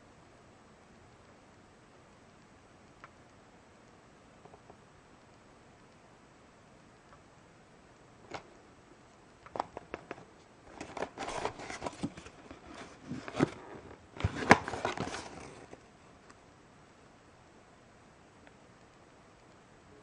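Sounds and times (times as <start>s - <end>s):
plastic bag crinkling: 9.5s - 15.8s.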